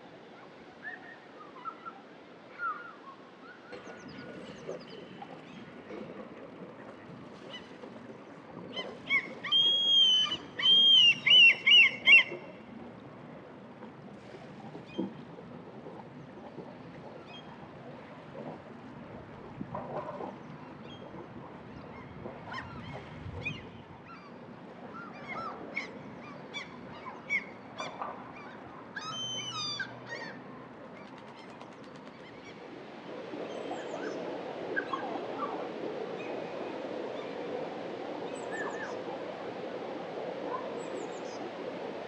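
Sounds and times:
gulls calling: 0:06.9 - 0:12.8.

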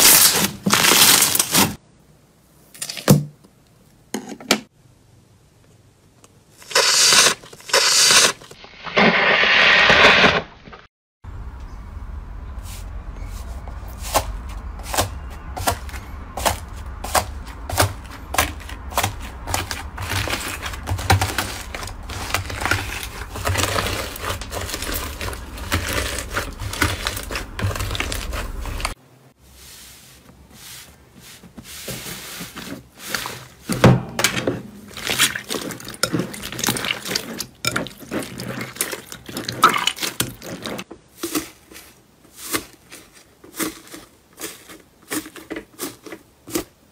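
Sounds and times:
slime squishes: 0:14.0 - 0:29.0, 0:34.9 - 0:46.8
foam-bead slime crackling: 0:17.1 - 0:29.0.

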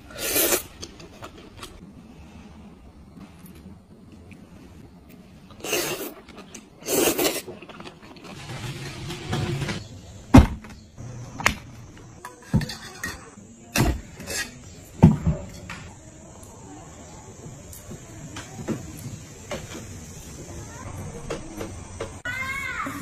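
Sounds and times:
loud slurping: 0:05.6 - 0:07.6.

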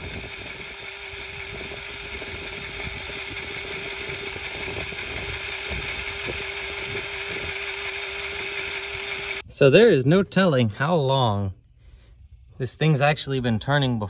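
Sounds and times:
grease gun motor whine: 0:00.0 - 0:09.5.

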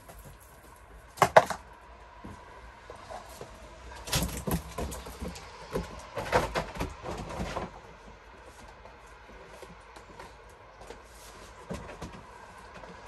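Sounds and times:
quiet work noise: 0:00.0 - 0:13.0
knocks clatters and rustling: 0:03.3 - 0:13.0.

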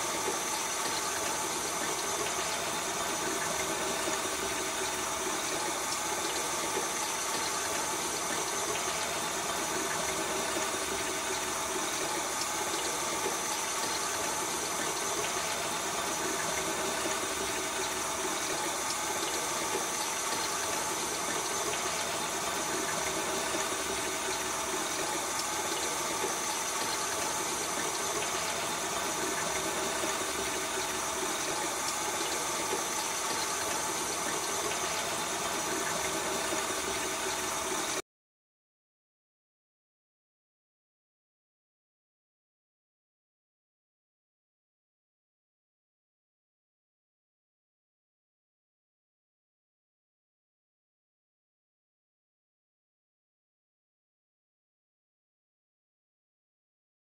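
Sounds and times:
water rushing through pipe: 0:00.0 - 0:38.0.

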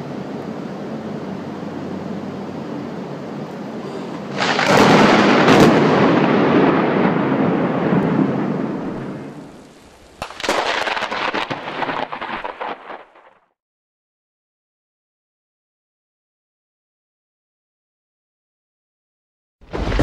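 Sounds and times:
thunder cracking and rolling: 0:04.2 - 0:13.5, 0:19.6 - 0:20.0.

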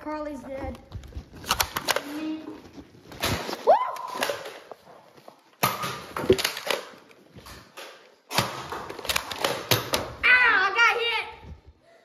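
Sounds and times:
camera being jostled: 0:00.8 - 0:02.2, 0:09.0 - 0:09.8.

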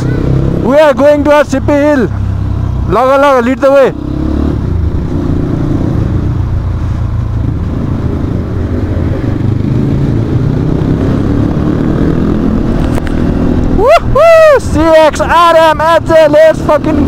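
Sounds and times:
dirt bike engine rumbling: 0:00.0 - 0:17.0.

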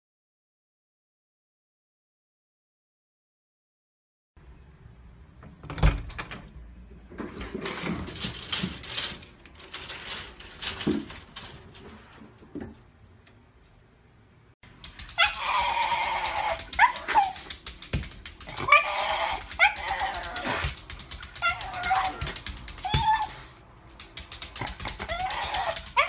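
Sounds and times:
dog crying high-pitched: 0:15.1 - 0:17.5, 0:18.5 - 0:23.6, 0:24.8 - 0:26.0.

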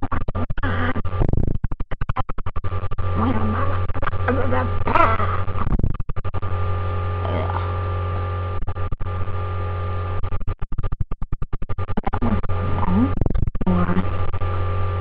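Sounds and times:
low electrical hum: 0:02.6 - 0:10.4.

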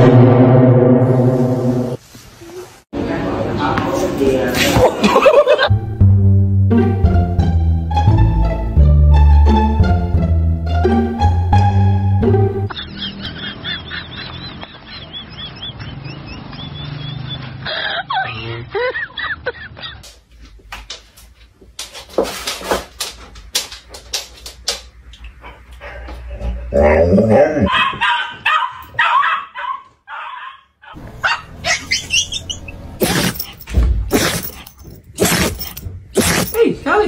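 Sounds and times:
dog barking and yelping: 0:27.3 - 0:36.5.

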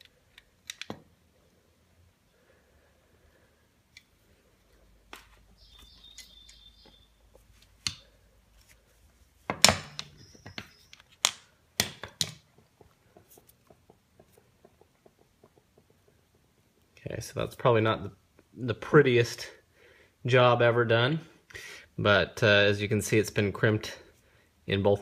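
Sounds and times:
tool squeaks: 0:09.9 - 0:11.1.

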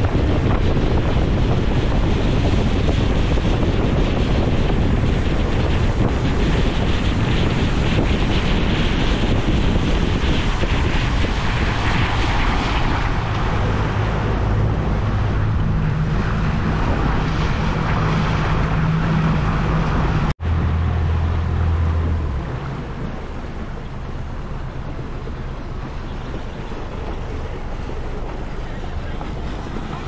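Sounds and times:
water against hull: 0:00.0 - 0:30.0
wind on microphone: 0:00.0 - 0:30.0
outboard motor humming: 0:11.5 - 0:30.0.

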